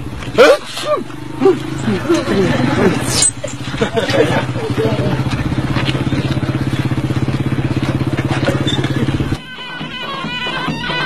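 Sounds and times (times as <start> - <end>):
small engine running: 0.0 - 11.0
folk music: 7.6 - 11.0.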